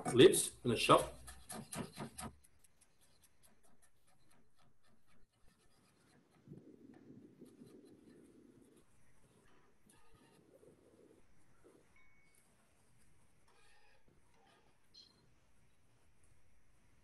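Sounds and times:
knife chopping on cutting board: 1.2s - 2.3s.

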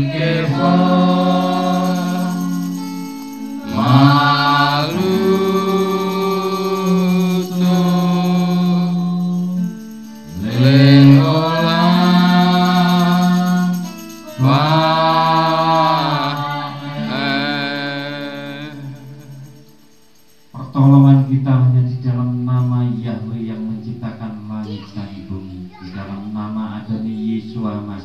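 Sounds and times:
voices singing a worship chant: 0.0s - 24.8s, 25.9s - 28.0s.

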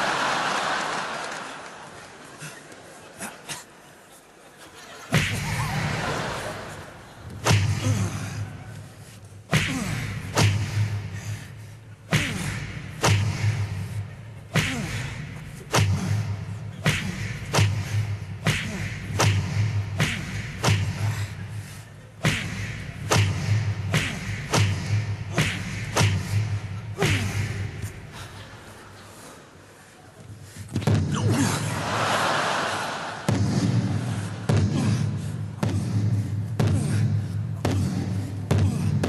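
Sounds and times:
punch and slam sound effects: 7.4s - 8.3s, 9.5s - 11.2s, 12.1s - 14.0s, 14.6s - 21.4s, 22.2s - 27.7s, 33.2s - 39.0s.

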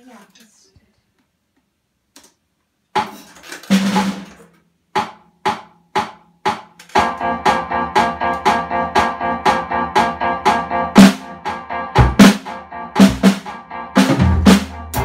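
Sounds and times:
drum kit playing: 2.9s - 15.0s
backing track music: 6.0s - 15.0s.

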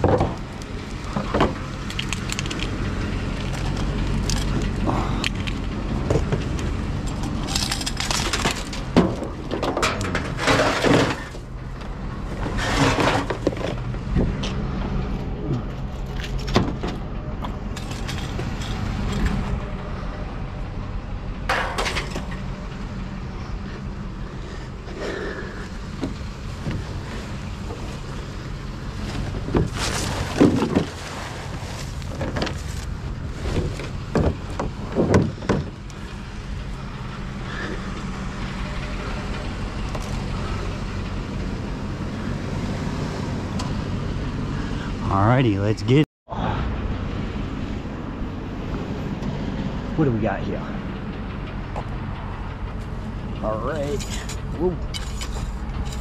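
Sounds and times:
vehicle engine running: 0.0s - 30.5s, 31.2s - 56.0s
scrap metal clanking and crashing: 3.5s - 11.5s, 12.2s - 14.0s, 17.7s - 19.7s, 21.5s - 22.8s, 27.8s - 36.2s, 53.8s - 56.0s.

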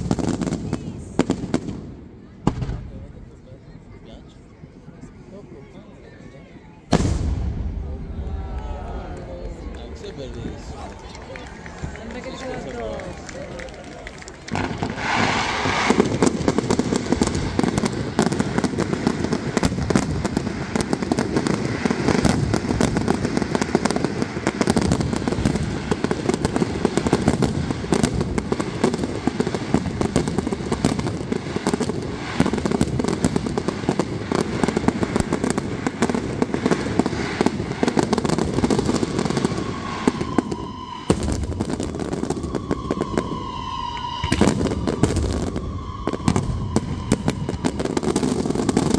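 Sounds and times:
fireworks bursting and crackling: 0.0s - 3.4s, 6.8s - 48.9s
firework whistles: 14.4s - 48.9s.

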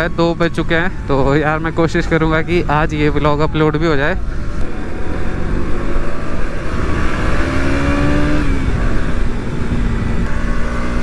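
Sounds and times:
wind rushing on microphone: 0.0s - 11.0s
motorcycle engine running: 4.2s - 11.0s.

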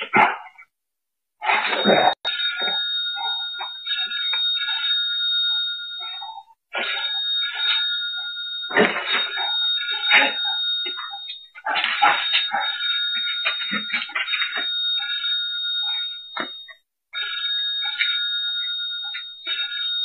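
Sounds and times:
high electronic ringing tone: 2.2s - 20.0s
cries and yelps: 6.0s - 16.1s.

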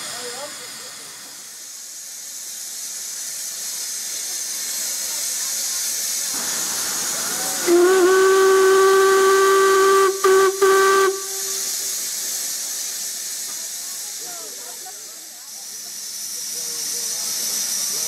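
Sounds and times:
steam hiss: 0.0s - 18.0s
steam whistle blast: 6.4s - 11.8s.

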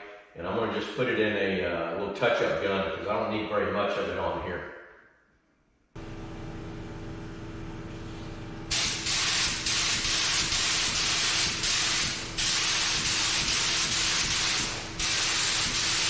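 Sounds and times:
spray gun hissing: 8.7s - 16.0s.

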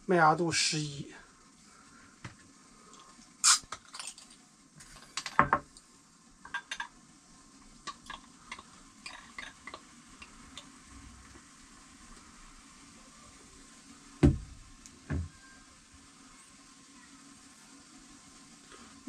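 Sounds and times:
beer pouring into glass: 2.8s - 5.8s, 6.4s - 13.2s
bottle cap cracking open: 3.4s - 4.4s.

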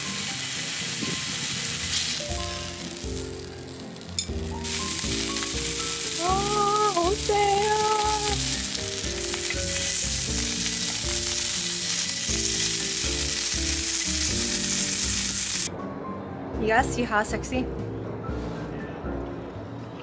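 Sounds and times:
beef sizzling on griddle: 0.0s - 15.7s
soft background music: 0.0s - 20.0s.

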